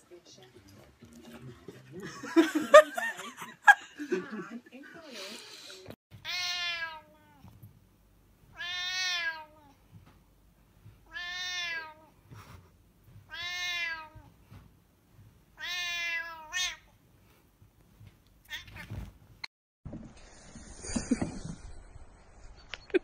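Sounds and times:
cat meowing: 0:06.2 - 0:07.5, 0:08.5 - 0:09.8, 0:11.0 - 0:12.2, 0:13.3 - 0:14.3, 0:15.6 - 0:16.9.

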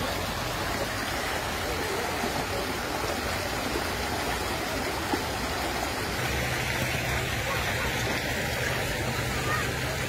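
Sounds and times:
floodwater rushing: 0:00.0 - 0:10.0.

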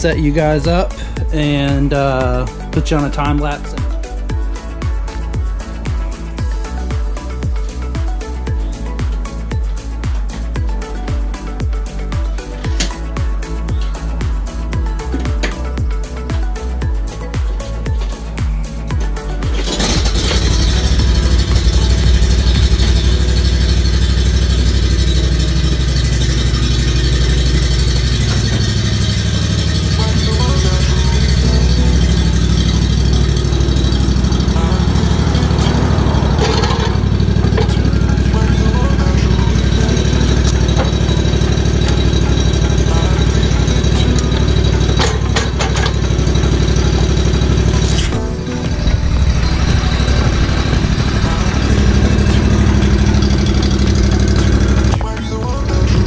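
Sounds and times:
engine running at low speed: 0:18.5 - 0:56.0.

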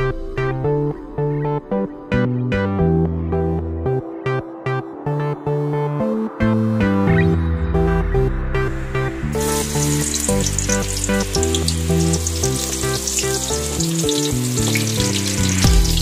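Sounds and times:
background music: 0:00.0 - 0:16.0
food sizzling in a pan: 0:09.3 - 0:16.0.

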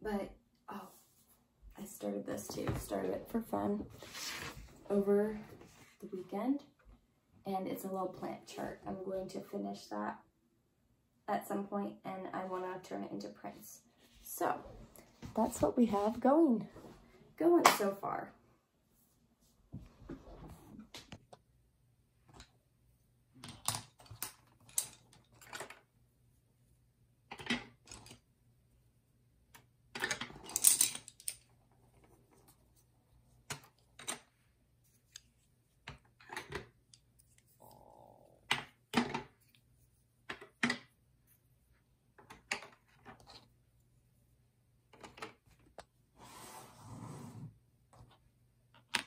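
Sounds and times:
pencils clicking on a desk: 0:23.4 - 0:25.8.

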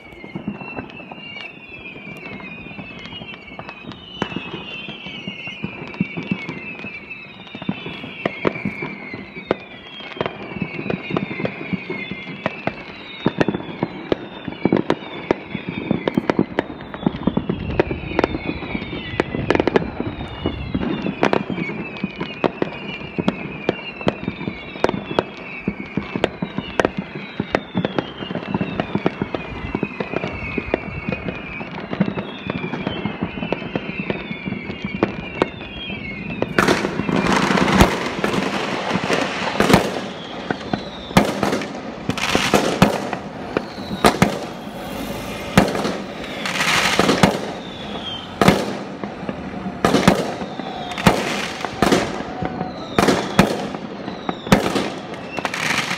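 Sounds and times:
close echoing firework bangs: 0:00.0 - 0:55.9
fireworks cracking and banging: 0:00.0 - 0:55.9
high falling firework whistle: 0:00.0 - 0:55.9.

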